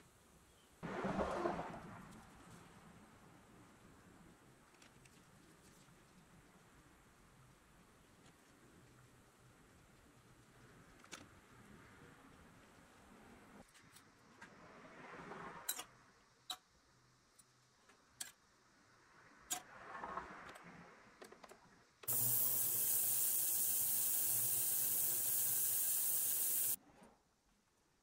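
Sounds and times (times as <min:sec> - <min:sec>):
ultrasonic cleaner hissing: 0:22.1 - 0:26.8.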